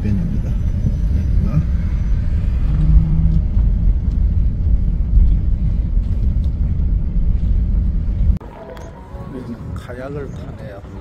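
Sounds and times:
van engine and road rumble: 0:00.0 - 0:11.0.

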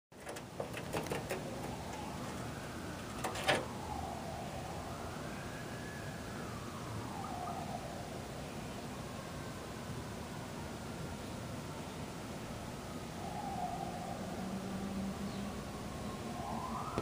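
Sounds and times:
steady background hiss: 0:00.2 - 0:17.0
siren wailing: 0:01.4 - 0:09.8, 0:13.0 - 0:17.0.

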